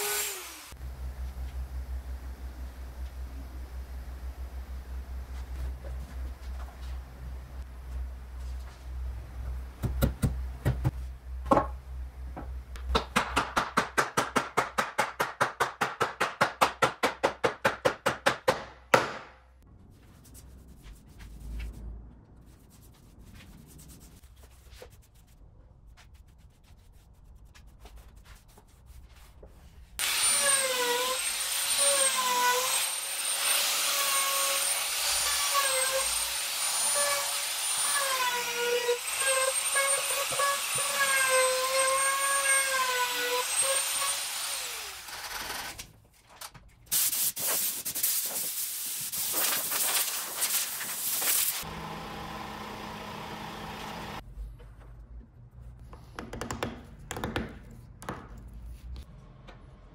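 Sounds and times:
trim router running: 51.7 - 54.2.

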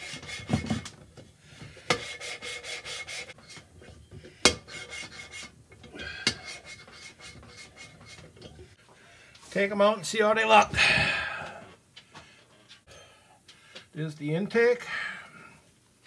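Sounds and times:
metal rasping on metal: 0.0 - 1.0, 1.8 - 8.8.

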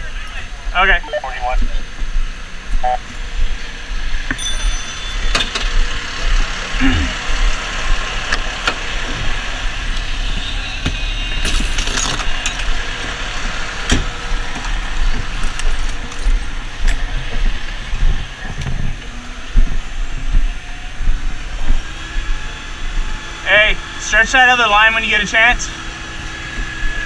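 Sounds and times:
fire engine idling: 0.0 - 27.0
equipment clinking and rattling: 4.4 - 5.8
metallic jangling: 4.4 - 5.8.

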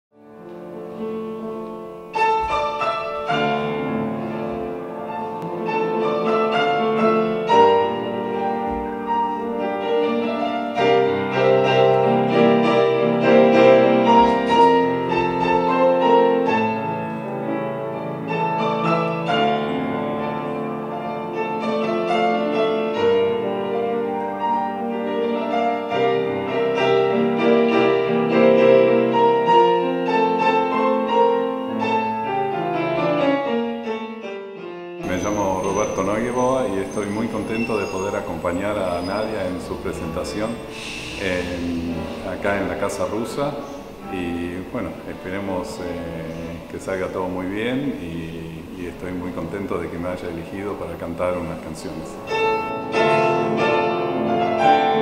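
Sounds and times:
piano music: 0.1 - 55.0.

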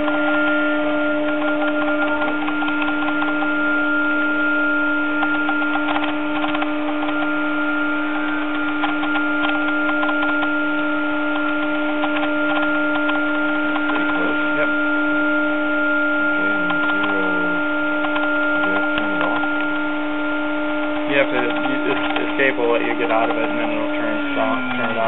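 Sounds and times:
machine hum: 0.0 - 25.0
faint voices: 16.3 - 17.6.

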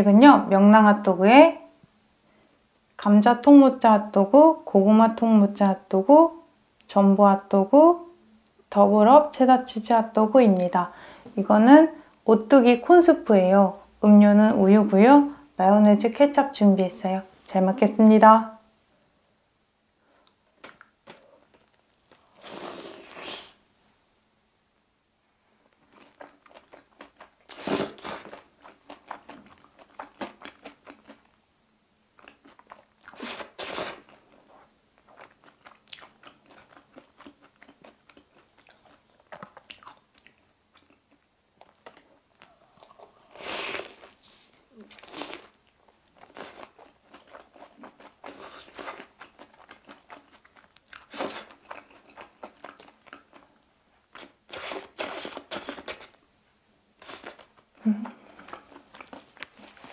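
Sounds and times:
crackly chewing: 25.6 - 31.4, 32.2 - 56.2, 57.0 - 59.9.

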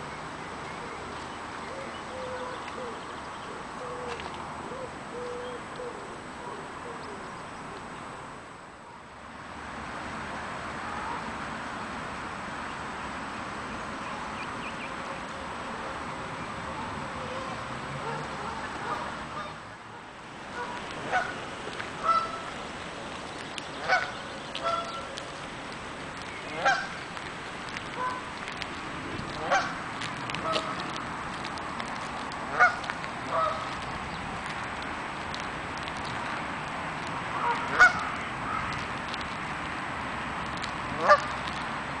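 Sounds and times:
outdoor background noise: 0.0 - 42.0
steady background hiss: 0.0 - 42.0
pigeon cooing: 1.7 - 3.0
goose honking: 20.6 - 21.4, 22.0 - 22.5, 23.8 - 25.0, 26.5 - 27.0, 29.4 - 29.8, 32.5 - 33.7, 37.4 - 38.6, 41.0 - 41.3.

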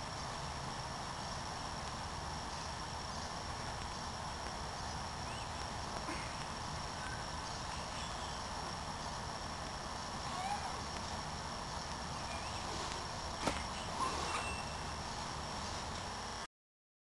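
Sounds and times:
even hiss: 0.0 - 16.5
thin high tone: 12.0 - 16.1.

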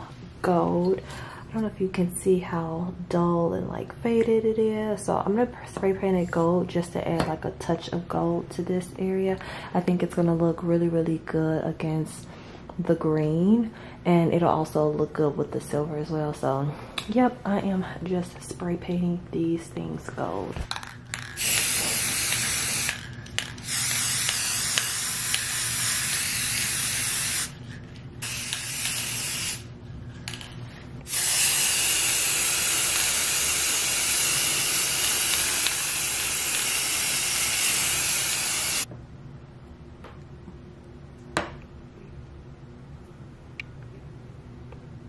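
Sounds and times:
spray paint can hissing: 21.4 - 27.6, 28.2 - 29.7, 31.1 - 38.9.

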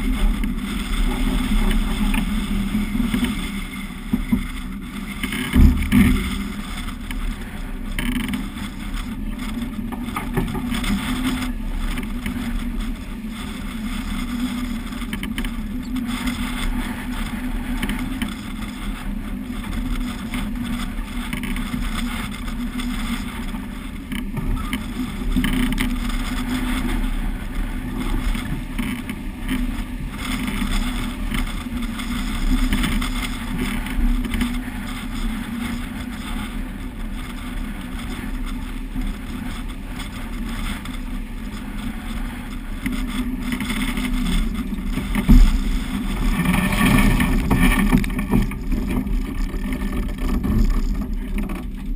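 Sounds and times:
low rumble: 0.0 - 51.9
wind and water rushing: 40.7 - 49.3
loud thump: 45.3 - 45.8.

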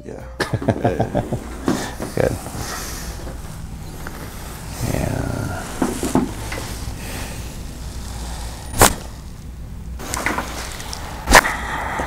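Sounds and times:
soft sounds of head positioning: 1.3 - 9.4
neck joints cracking: 1.4 - 11.6.

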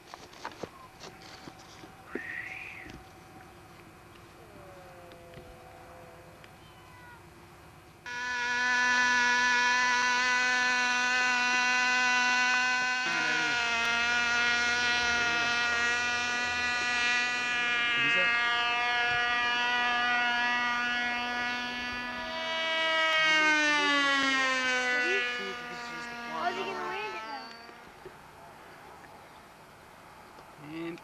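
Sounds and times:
model airplane engine buzzing: 7.9 - 28.2.

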